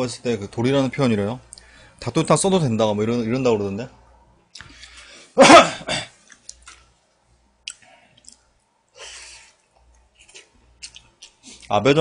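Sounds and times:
person chewing: 0:06.1 - 0:06.9, 0:07.6 - 0:08.6, 0:09.4 - 0:11.7.

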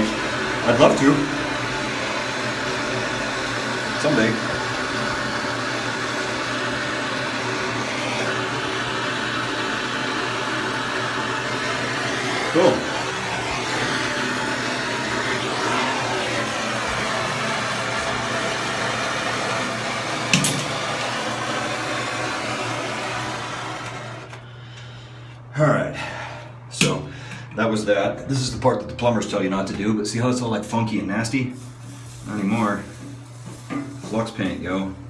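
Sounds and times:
blowtorch flame: 0:00.0 - 0:24.7, 0:31.6 - 0:34.2.

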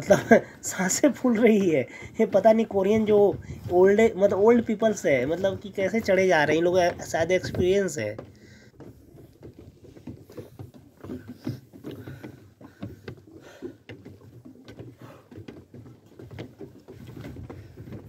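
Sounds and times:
soft footfalls on wooden stairs: 0:00.0 - 0:18.0
person panting hard: 0:01.9 - 0:02.2, 0:11.9 - 0:13.9.

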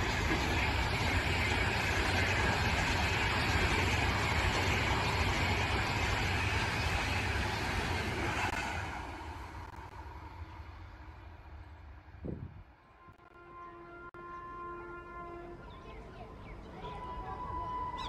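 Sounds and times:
train rushing past: 0:00.0 - 0:12.9.

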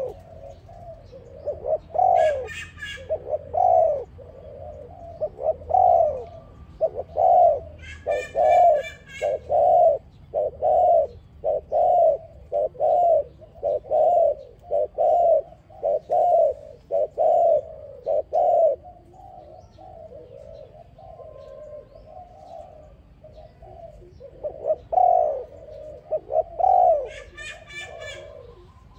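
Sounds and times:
dove cooing: 0:00.0 - 0:28.9
small bird chirping: 0:00.0 - 0:28.9.

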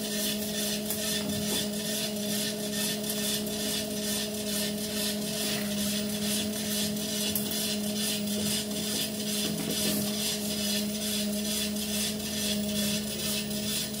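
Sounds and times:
treadmill motor hum: 0:00.0 - 0:14.0.

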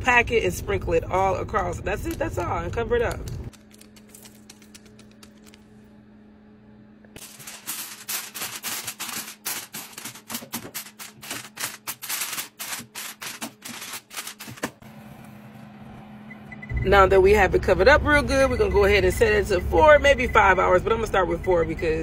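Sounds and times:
aluminium foil crinkling: 0:03.5 - 0:05.8, 0:07.2 - 0:14.8.

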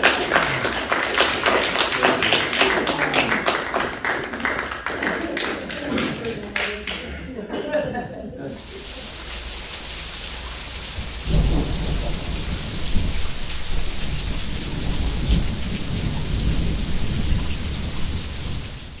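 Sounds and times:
rain hissing: 0:08.5 - 0:19.0
thunder rumbling: 0:08.9 - 0:19.0.

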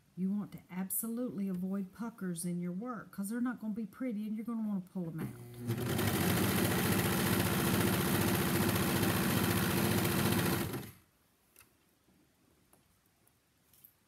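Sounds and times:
serger sewing machine rattling: 0:05.5 - 0:11.0.

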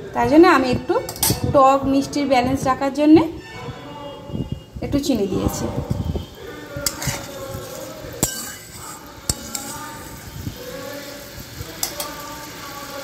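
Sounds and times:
metal spatula scraping a pan: 0:05.2 - 0:10.5.

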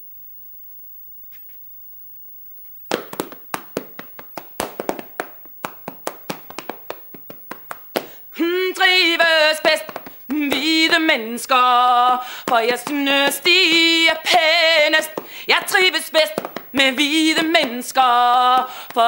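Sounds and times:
hands clapping and body slapping: 0:02.9 - 0:08.2, 0:09.1 - 0:11.1, 0:12.4 - 0:18.0, 0:18.6 - 0:19.0.

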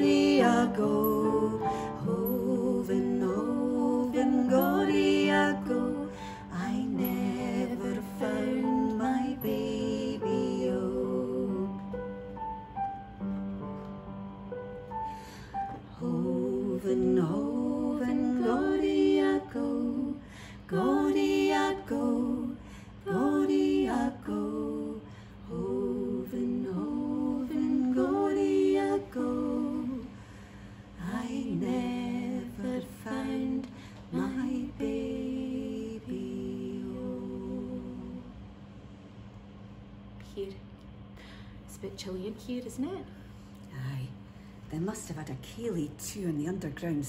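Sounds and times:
women singing unaccompanied: 0:00.0 - 0:12.3, 0:15.8 - 0:30.2, 0:31.0 - 0:38.4.

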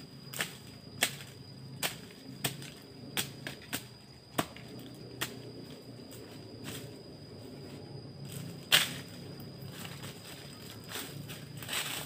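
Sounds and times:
twigs and leaves snapping underfoot: 0:08.3 - 0:12.0.

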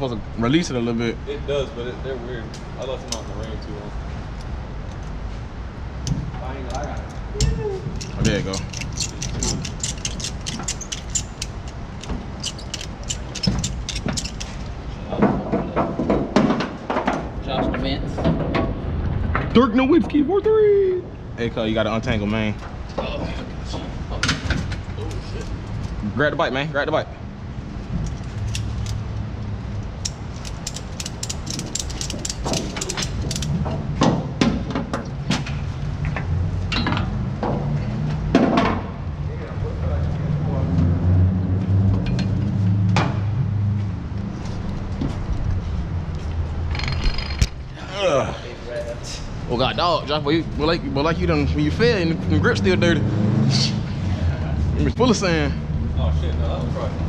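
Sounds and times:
ratchet buckle clicking: 0:06.7 - 0:14.8, 0:28.0 - 0:29.0, 0:29.7 - 0:33.6.

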